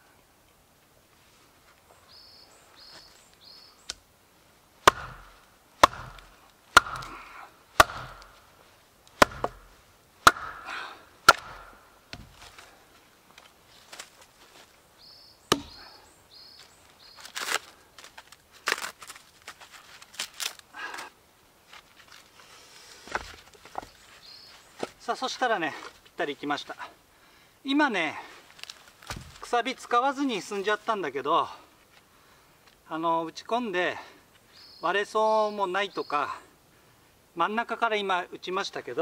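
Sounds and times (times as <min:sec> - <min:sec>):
axe chopping wood: 0:04.8 - 0:08.5, 0:09.2 - 0:12.6, 0:15.5 - 0:15.8, 0:29.1 - 0:29.5
wood pieces knocking: 0:04.9 - 0:07.2, 0:09.2 - 0:12.6.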